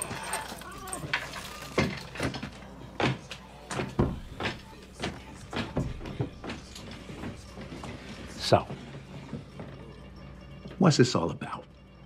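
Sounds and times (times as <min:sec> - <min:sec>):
soft footsteps: 0:02.6 - 0:11.0.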